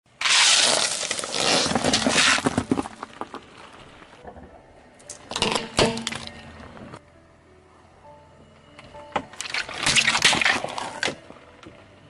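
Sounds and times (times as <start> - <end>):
candies pattering on asphalt: 0.2 - 4.2
tire crunching candies and dish: 0.2 - 4.2, 9.4 - 11.3.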